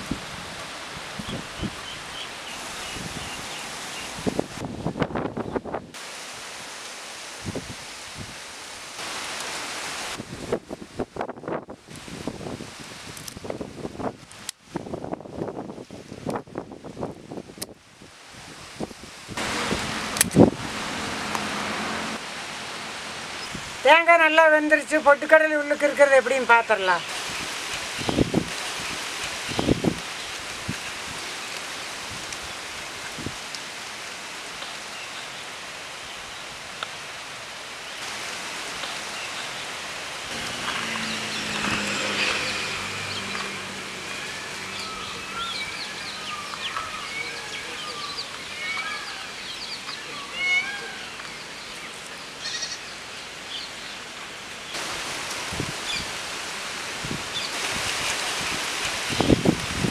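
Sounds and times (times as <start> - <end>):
outdoor background hiss: 0.0 - 59.9
high animal call: 44.0 - 51.2.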